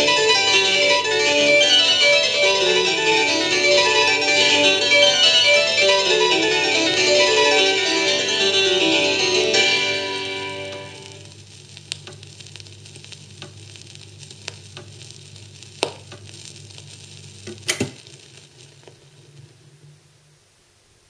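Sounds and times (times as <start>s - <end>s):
vinyl record crackle and hiss: 0.0s - 21.0s
record clicks and pops: 10.7s - 19.7s.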